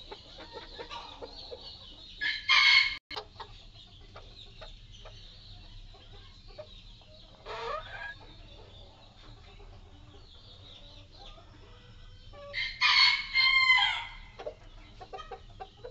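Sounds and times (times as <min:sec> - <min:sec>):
chickens clucking: 0:00.0 - 0:15.9
rooster crowing: 0:02.2 - 0:03.0, 0:12.6 - 0:14.3.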